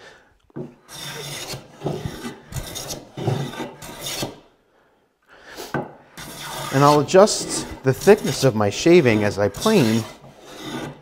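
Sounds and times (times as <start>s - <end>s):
hand plane cutting wood: 0.6s - 4.5s, 6.2s - 11.0s.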